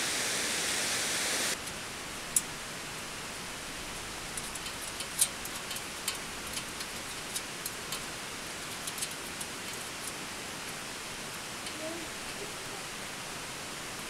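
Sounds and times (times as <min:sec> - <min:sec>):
steady background hiss: 0:00.0 - 0:14.0
small metallic clicks and taps: 0:04.4 - 0:10.8.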